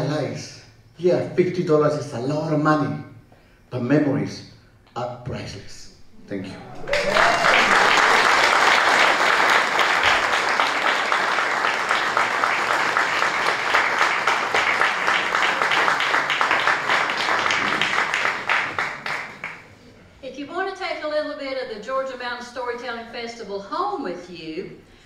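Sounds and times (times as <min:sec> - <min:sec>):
audience applauding: 0:06.7 - 0:19.7.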